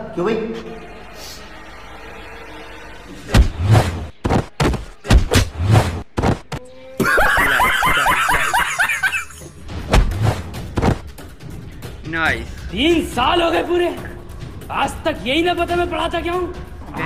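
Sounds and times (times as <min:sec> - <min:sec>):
sharp hits with deep thuds: 0:03.3 - 0:06.6, 0:09.7 - 0:11.2
man cackling laugh: 0:07.0 - 0:09.4.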